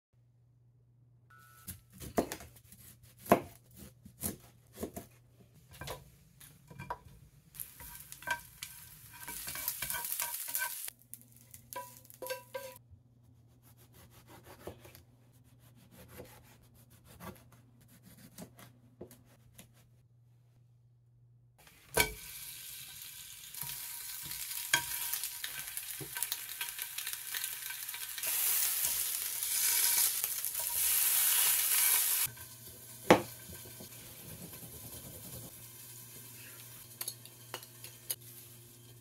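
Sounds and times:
knife slicing tomato on board: 1.9s - 5.2s, 13.6s - 15.0s, 15.6s - 19.8s.

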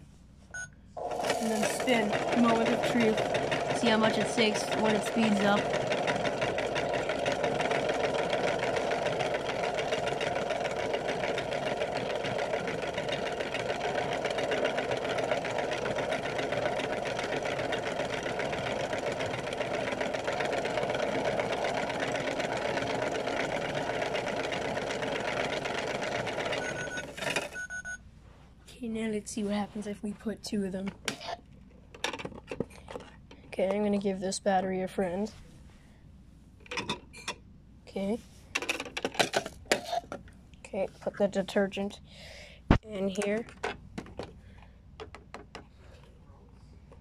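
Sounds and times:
plastic balls rattling: 1.0s - 27.6s
toy motor whirring: 1.0s - 27.6s.

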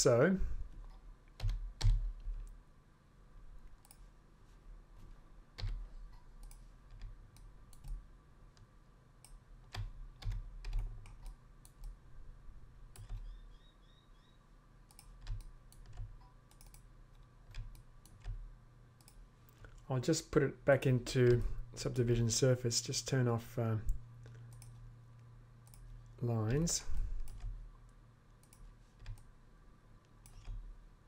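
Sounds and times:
low steady hum: 0.0s - 31.0s
mouse and keyboard clicks: 13.0s - 13.3s, 30.2s - 30.6s.

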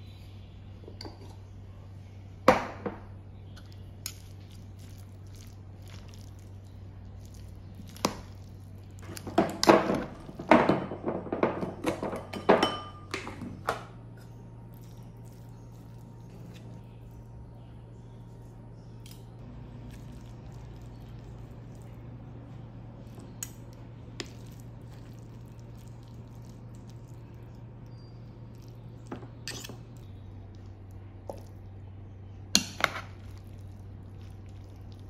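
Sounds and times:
metal spoons clinking on bowl: 12.2s - 13.2s, 28.6s - 30.0s.

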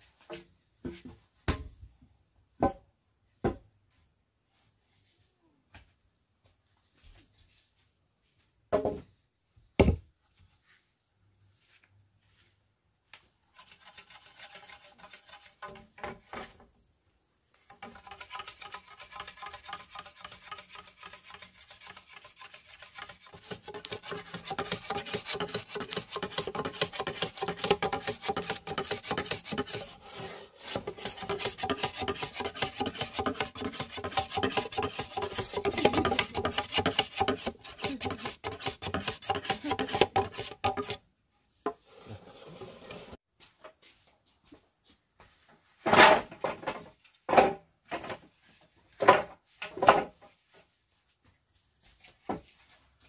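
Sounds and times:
hand tool rasping on wood: 13.6s - 15.8s, 17.7s - 41.0s.

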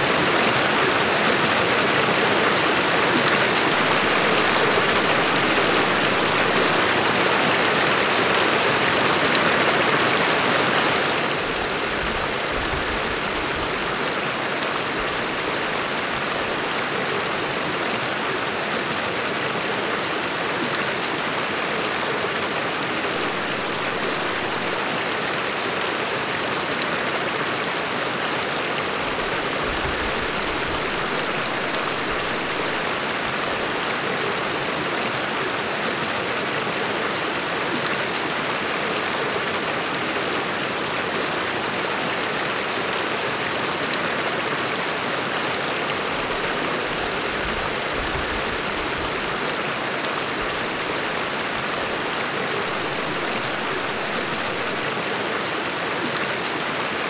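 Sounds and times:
stream flowing: 0.0s - 57.0s
bird chirping: 3.7s - 6.8s, 23.2s - 24.8s, 30.0s - 32.8s, 52.7s - 54.8s.

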